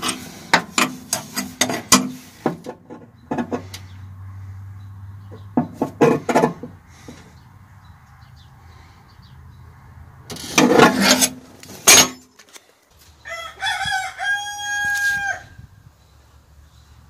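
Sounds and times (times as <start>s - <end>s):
rooster crowing: 13.2s - 15.7s.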